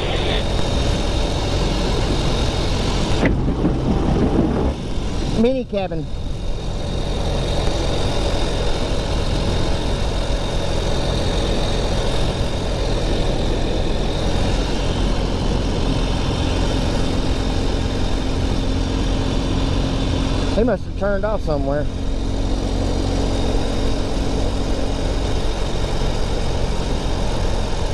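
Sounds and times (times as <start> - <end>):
wind noise: 0.0 - 20.6
motorcycle engine running: 0.0 - 27.9
road noise: 0.0 - 27.9.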